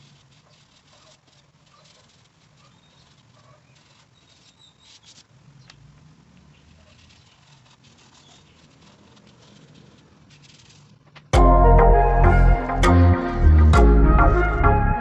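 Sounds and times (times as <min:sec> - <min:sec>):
pastel scratching on paper: 0:00.0 - 0:05.3, 0:06.7 - 0:11.2.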